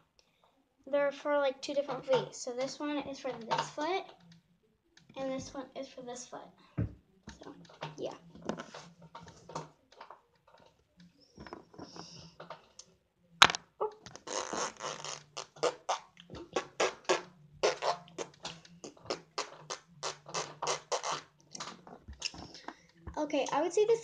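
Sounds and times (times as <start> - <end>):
rubbing noise on phone microphone: 14.1 - 18.4.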